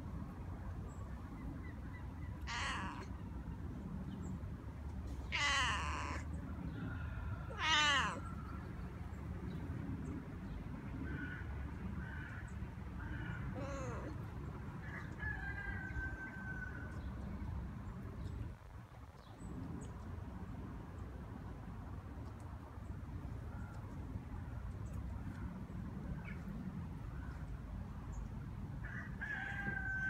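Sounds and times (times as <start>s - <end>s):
cat meowing: 2.4s - 3.2s, 5.3s - 6.3s, 7.5s - 8.3s, 13.5s - 14.2s.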